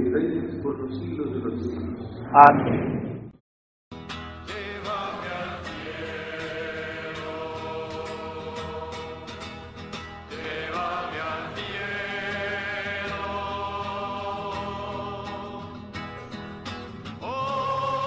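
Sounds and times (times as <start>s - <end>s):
slow hymn singing: 4.4s - 16.4s, 17.0s - 18.0s.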